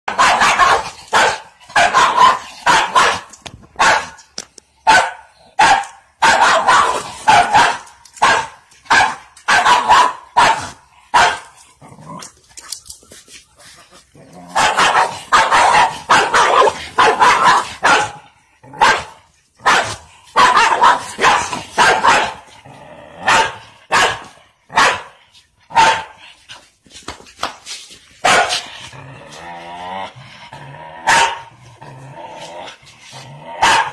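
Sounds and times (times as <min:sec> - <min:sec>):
dog barking: 0:00.1 - 0:04.2, 0:04.8 - 0:11.5, 0:14.5 - 0:22.4, 0:23.2 - 0:26.2, 0:28.2 - 0:28.6, 0:31.0 - 0:31.5, 0:33.6 - 0:33.9.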